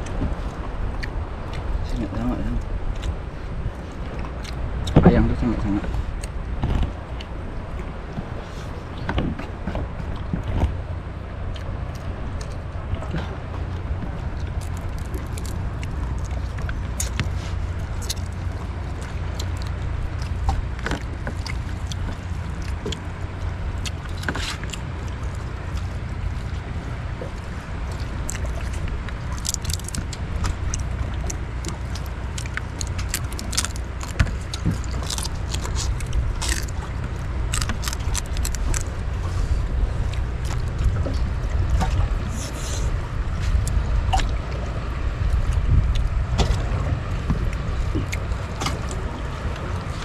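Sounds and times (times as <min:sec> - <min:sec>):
low rumble: 0:00.0 - 0:50.0
crab shells cracking: 0:29.1 - 0:38.9.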